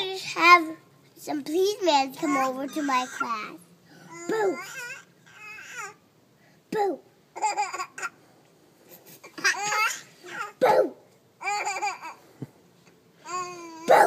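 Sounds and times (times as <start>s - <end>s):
baby laughing: 7.4s - 8.2s, 9.0s - 10.6s, 11.4s - 12.3s.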